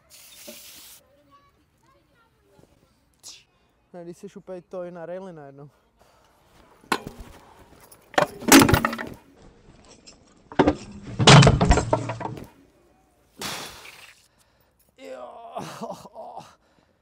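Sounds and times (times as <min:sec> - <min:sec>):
scooter clattering across ground: 0:06.9 - 0:12.6
rider crashing onto concrete: 0:08.2 - 0:09.2, 0:10.6 - 0:12.6.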